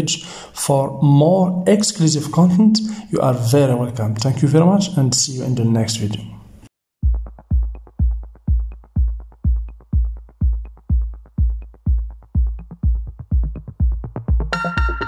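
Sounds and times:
kick drum beat: 0:07.0 - 0:15.0
bright synth chord: 0:14.5 - 0:15.0.

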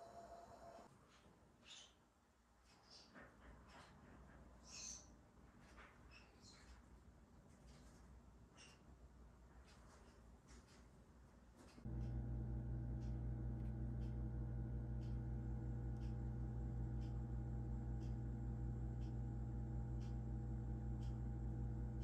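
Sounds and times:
faint light ticks: 0:11.6 - 0:22.0
range hood fan humming: 0:11.8 - 0:22.0.

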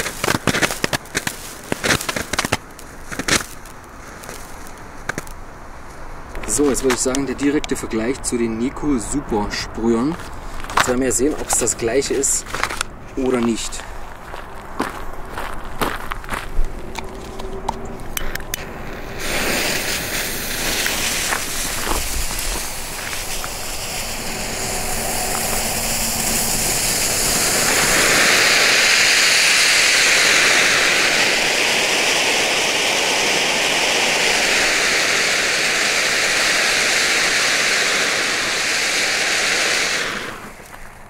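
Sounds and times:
spark fountains hissing: 0:00.0 - 0:05.3, 0:18.2 - 0:40.9.

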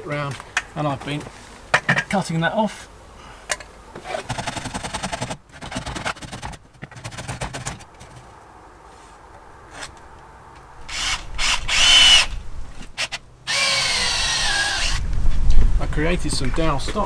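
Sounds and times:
cordless drill whine: 0:10.9 - 0:12.4, 0:13.0 - 0:15.0.

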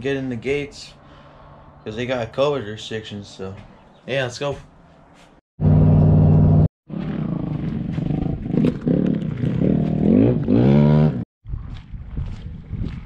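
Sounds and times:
dirt bike engine revving: 0:05.6 - 0:11.2.

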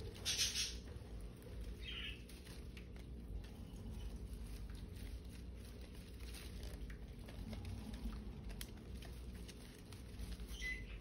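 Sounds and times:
bird chirp: 0:00.0 - 0:01.0, 0:01.6 - 0:02.6, 0:10.4 - 0:11.0
birds rustling in leaves: 0:00.0 - 0:11.0.

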